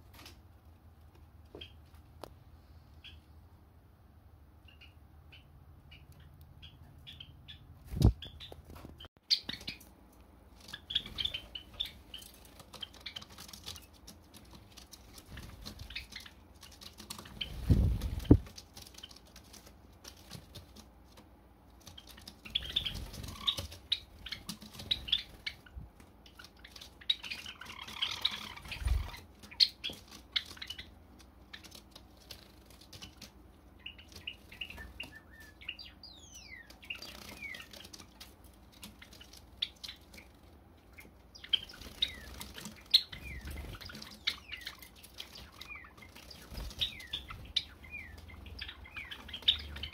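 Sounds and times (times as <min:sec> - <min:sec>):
sparrows chirping: 0:01.5 - 0:02.0, 0:04.6 - 0:10.0, 0:10.6 - 0:19.6, 0:21.8 - 0:49.9
falling bird calls: 0:10.6 - 0:19.5, 0:21.8 - 0:49.9
wing flaps: 0:17.0 - 0:19.6.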